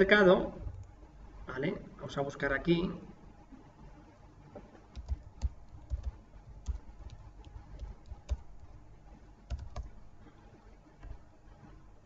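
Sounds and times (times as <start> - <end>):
keyboard typing: 4.9 - 8.8, 9.5 - 10.0.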